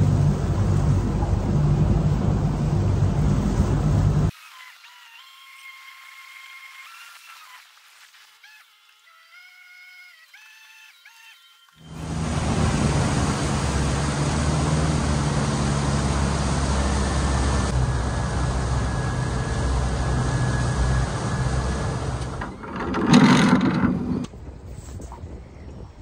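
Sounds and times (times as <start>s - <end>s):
motorboat engine drone: 0.0s - 4.3s, 11.8s - 24.3s
rush of wind and water: 11.9s - 22.1s.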